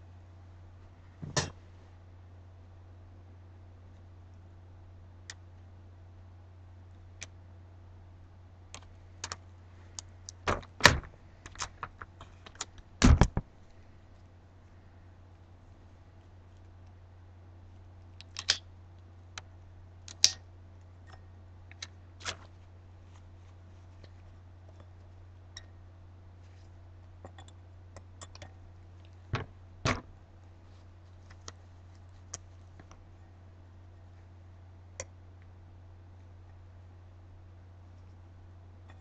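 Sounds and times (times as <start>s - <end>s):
steady low hum: 0.0s - 39.0s
gloved hands handling paper stencil: 9.2s - 13.8s, 21.7s - 25.2s
small clicks and taps on glass: 27.2s - 28.6s.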